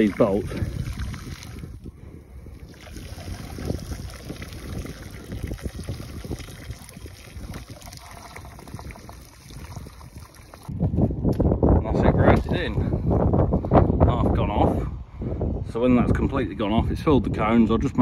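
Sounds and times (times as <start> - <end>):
grout pouring and slopping: 0.0 - 1.8, 2.6 - 10.7
wind rumbling on microphone: 0.0 - 18.0.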